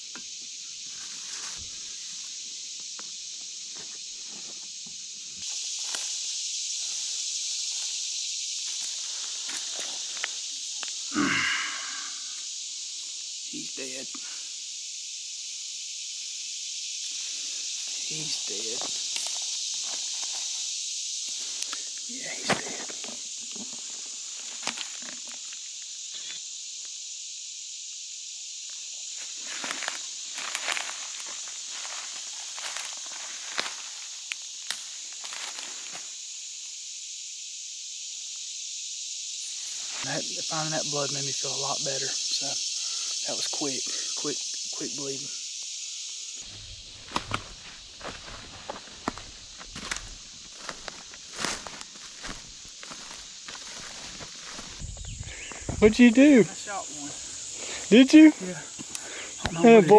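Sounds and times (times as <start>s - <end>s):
insect chorus drone: 0.0s - 59.9s
footsteps crunching in dry leaves: 17.6s - 21.6s, 29.2s - 36.2s, 46.4s - 55.9s.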